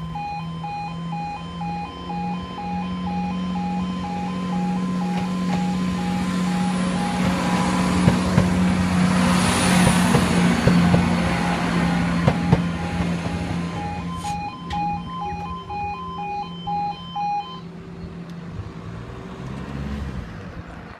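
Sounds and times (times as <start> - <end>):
two-tone level crossing alarm: 0.0 - 17.7
train passing with wheel clicks: 4.7 - 15.5.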